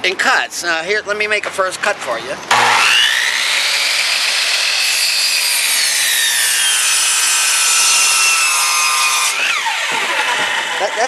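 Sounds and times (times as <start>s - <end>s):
miter saw whine: 2.5s - 11.0s
saw cutting through wood: 2.5s - 11.0s.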